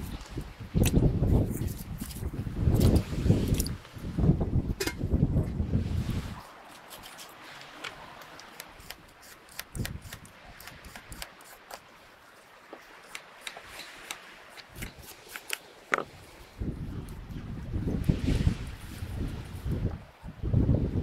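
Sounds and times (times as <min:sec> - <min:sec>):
wind rumble on microphone: 0:00.0 - 0:07.2, 0:09.6 - 0:11.2, 0:16.0 - 0:21.0
peeler scraping carrot: 0:06.7 - 0:07.3, 0:08.4 - 0:11.8, 0:13.0 - 0:15.6.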